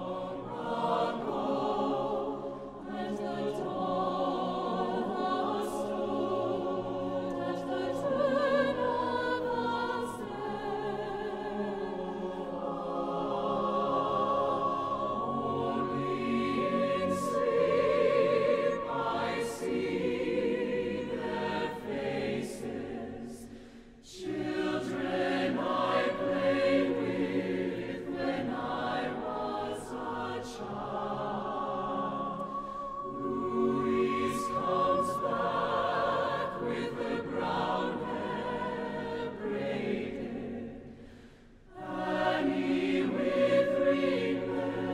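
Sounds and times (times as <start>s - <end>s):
choir singing a cappella: 0.0s - 44.9s.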